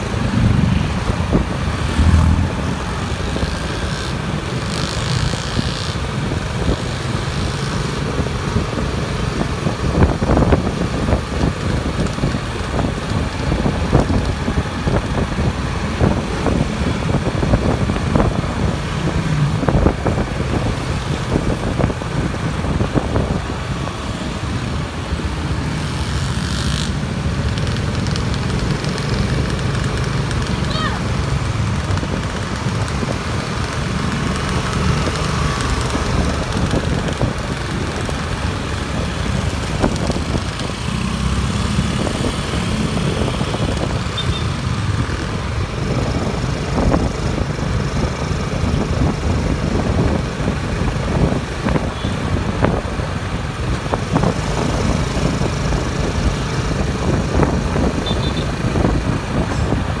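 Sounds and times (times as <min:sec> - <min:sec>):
heavy low rumble: 0:00.0 - 0:03.3
passing motorbikes and cars: 0:00.0 - 1:00.0
scooter engine running: 0:25.3 - 1:00.0.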